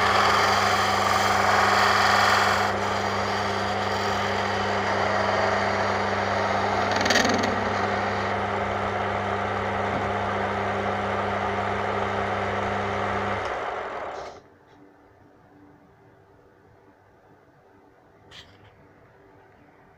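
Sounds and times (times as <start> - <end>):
lathe motor hum: 0.0 - 14.4
lathe spinning down: 0.0 - 14.4.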